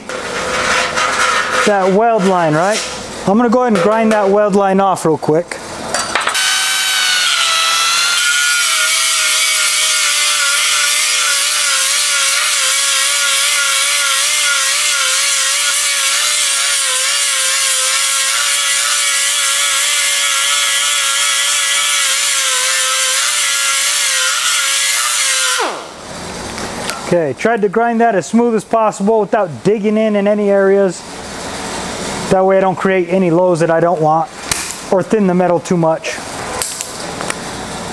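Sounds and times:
angle grinder grinding metal: 6.2s - 25.9s.

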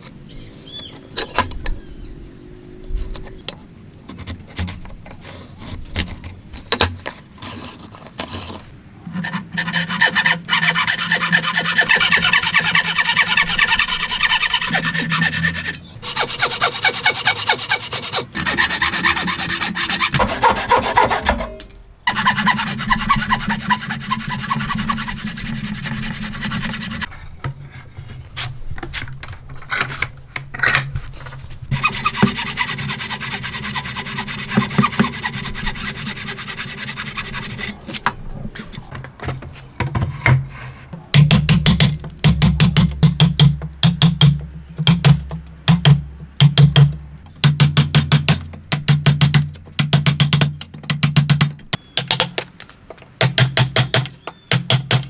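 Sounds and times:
hand saw rasping through wood: 9.2s - 27.1s, 31.7s - 37.8s.

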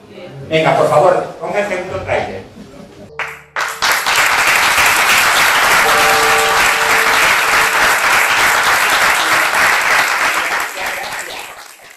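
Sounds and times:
audience applauding: 3.2s - 11.9s.

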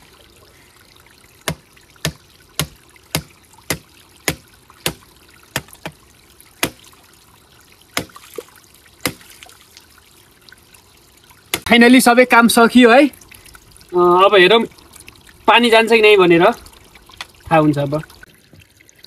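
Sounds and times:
faint water trickle: 0.0s - 19.0s
sickle knocking on pipe: 1.5s - 5.0s, 5.6s - 6.0s, 9.0s - 9.2s.

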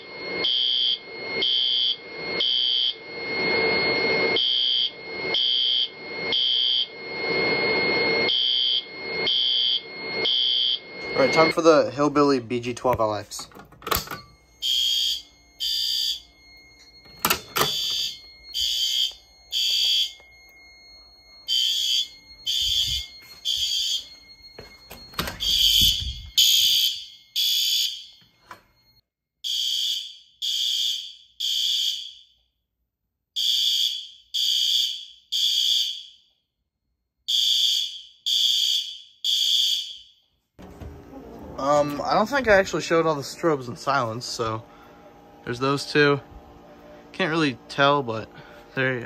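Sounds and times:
fire alarm horn blasts: 0.0s - 32.5s, 33.4s - 36.3s, 37.3s - 40.2s, 41.6s - 49.0s
steady high tone: 6.9s - 27.7s, 40.6s - 49.0s.

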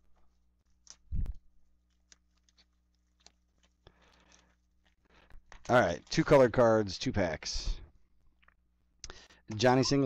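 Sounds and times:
plastic wrap crinkling: 0.0s - 6.6s.

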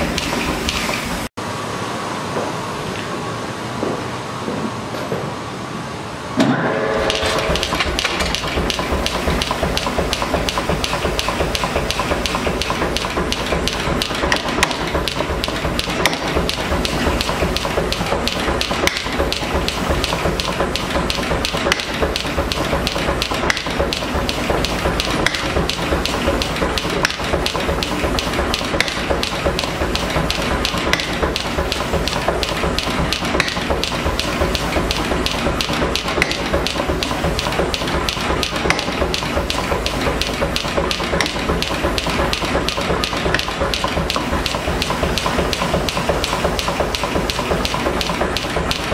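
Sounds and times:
machine humming and hissing: 0.0s - 48.9s
shop noise rumble: 0.0s - 48.9s
power hammer blows: 6.4s - 9.4s
power hammer striking steel: 6.4s - 48.9s.

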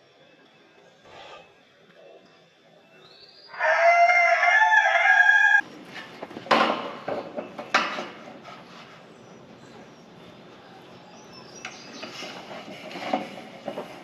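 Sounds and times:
rooster crowing: 3.5s - 5.6s
metal roofing sheet knocking: 6.4s - 8.2s.

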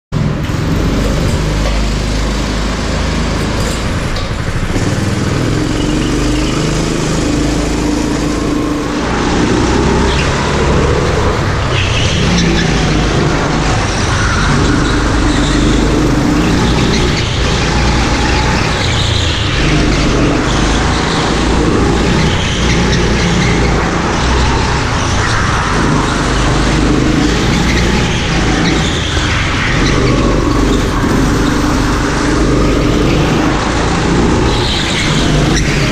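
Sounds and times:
go-kart engine running: 0.1s - 35.9s.

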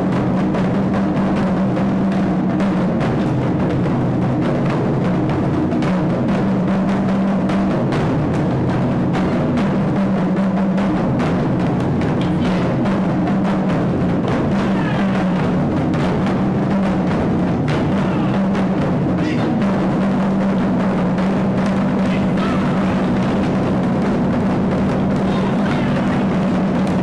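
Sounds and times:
ensemble drumming: 0.0s - 27.0s.

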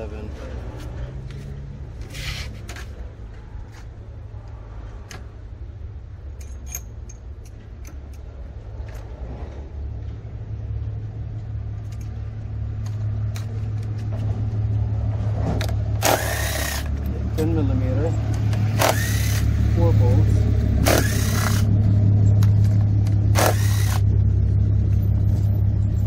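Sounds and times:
low steady rumble: 3.0s - 26.0s
metallic clicks of tools: 6.3s - 9.1s
cordless power driver whirring: 16.0s - 17.0s, 18.5s - 19.6s, 20.8s - 21.7s, 23.3s - 24.1s.

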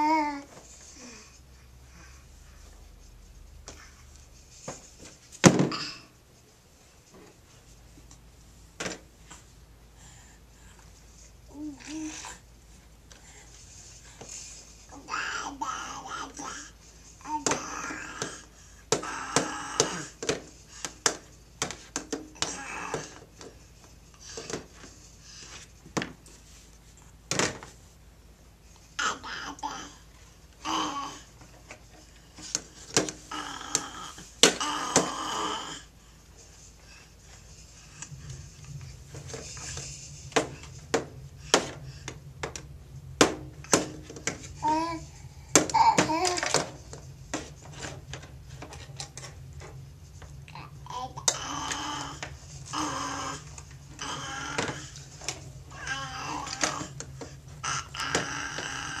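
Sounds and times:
baby crying: 50.9s - 53.4s, 54.0s - 54.9s, 55.7s - 57.0s, 57.6s - 59.0s.

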